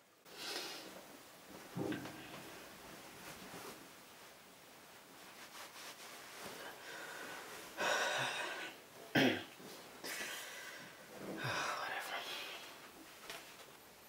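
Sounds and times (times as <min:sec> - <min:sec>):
man breathing heavily: 0:06.6 - 0:08.8.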